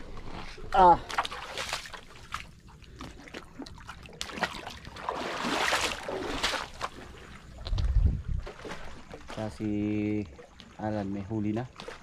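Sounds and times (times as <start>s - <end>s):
seawater sloshing among rocks: 0.0s - 12.0s.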